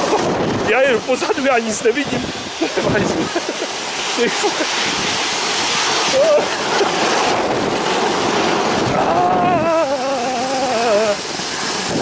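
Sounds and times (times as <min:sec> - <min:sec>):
snow tube sliding: 0:00.0 - 0:12.0
wind buffeting microphone: 0:00.0 - 0:12.0
person crying out: 0:06.1 - 0:06.9, 0:08.9 - 0:11.3.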